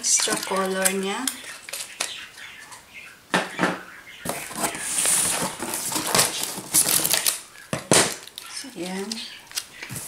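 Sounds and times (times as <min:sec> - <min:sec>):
cardboard rustling scrape: 0:04.3 - 0:07.2.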